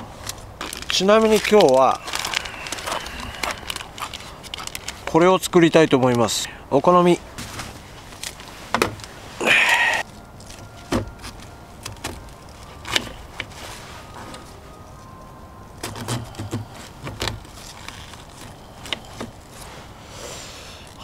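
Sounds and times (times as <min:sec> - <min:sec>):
rustle: 0:06.9 - 0:21.0.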